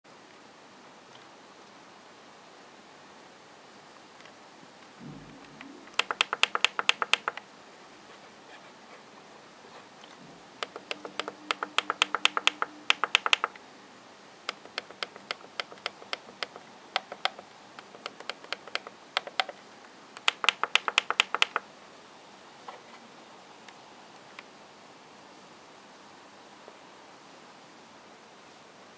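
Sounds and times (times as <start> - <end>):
touchpad button clicks: 5.6 - 7.4, 10.6 - 13.6, 14.5 - 19.6, 20.2 - 21.6.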